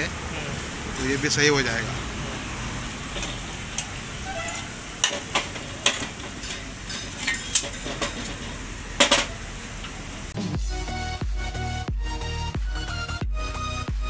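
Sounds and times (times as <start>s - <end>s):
metallic clinks and knocks: 3.1s - 9.4s.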